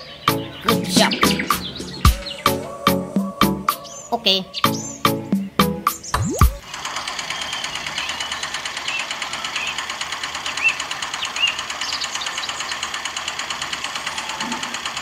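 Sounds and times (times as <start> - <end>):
toy cement mixer rattling: 6.6 - 15.0.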